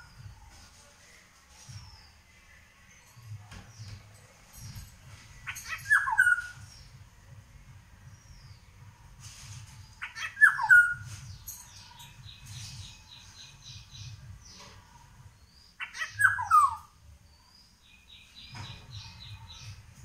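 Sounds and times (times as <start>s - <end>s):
high bird chirping: 2.9s - 7.1s, 9.7s - 20.0s.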